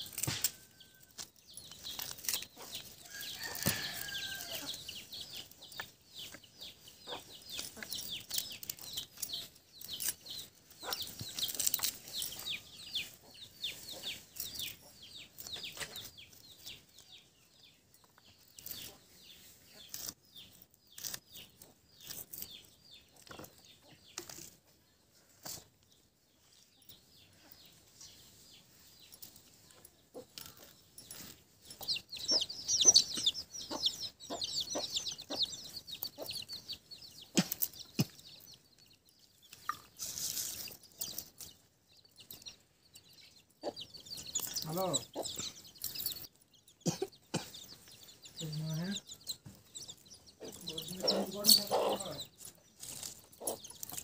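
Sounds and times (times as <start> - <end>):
birds chirping: 0.0 - 54.0
blade scraping seeds from fruit: 1.7 - 4.9.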